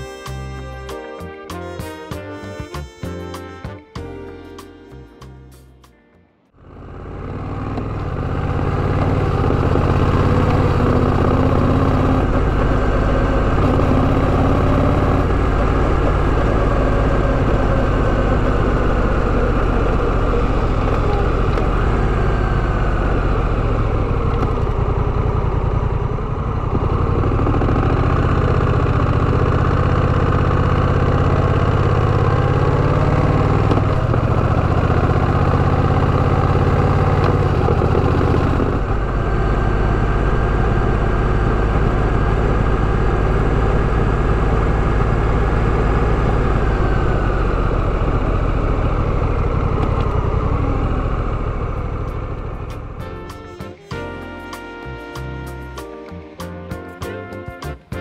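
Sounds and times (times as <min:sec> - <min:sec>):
motorcycle engine running: 0:06.5 - 0:58.0.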